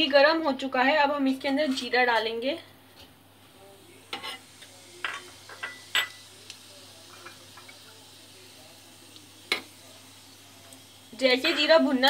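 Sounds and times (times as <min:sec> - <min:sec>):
seeds sizzling in hot oil: 0:02.9 - 0:12.0
metal spoon clinking on pan: 0:05.0 - 0:06.2, 0:11.4 - 0:11.8.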